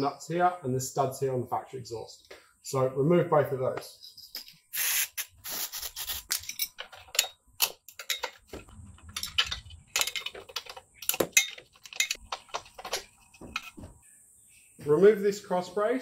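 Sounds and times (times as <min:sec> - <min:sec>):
aerosol spray hiss: 0:04.7 - 0:06.2
spanner clinking on nuts: 0:06.4 - 0:08.5, 0:09.2 - 0:13.8.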